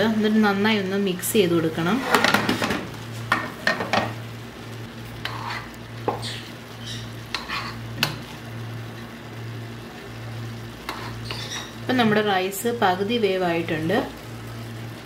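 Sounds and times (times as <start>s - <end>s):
faint sizzle: 0.0s - 15.0s
steady low hum: 0.0s - 15.0s
spatula scraping pot: 1.8s - 2.8s, 5.2s - 8.2s, 10.8s - 12.2s.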